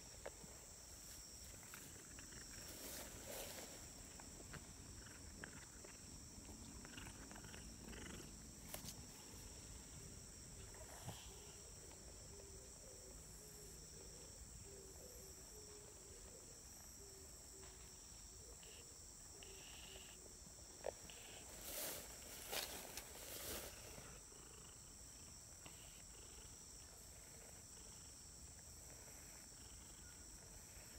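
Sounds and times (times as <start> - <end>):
rustles: 0.0 - 10.0, 20.8 - 24.3
insects chirring in grass: 0.0 - 30.9.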